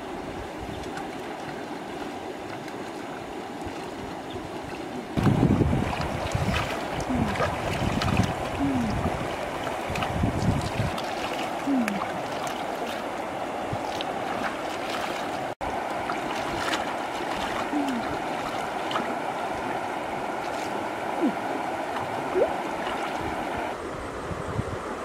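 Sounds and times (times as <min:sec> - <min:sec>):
river water rushing: 0:00.0 - 0:25.0
small splashes: 0:04.7 - 0:19.8, 0:20.4 - 0:23.6.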